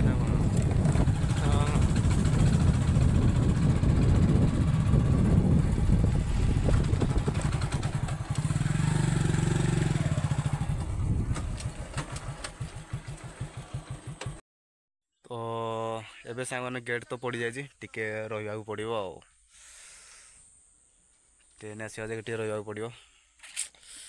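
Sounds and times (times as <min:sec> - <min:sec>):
wind buffeting microphone: 0:00.0 - 0:12.0
motorcycle engine: 0:00.0 - 0:14.4.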